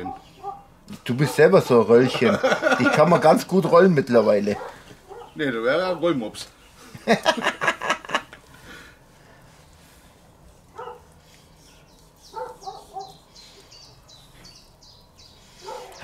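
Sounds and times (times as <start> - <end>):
dog barking: 0.0 - 1.5, 4.5 - 5.4, 10.7 - 11.1, 12.3 - 13.2, 15.6 - 16.0
small birds chirping: 0.0 - 2.2, 3.4 - 7.2, 8.4 - 16.0.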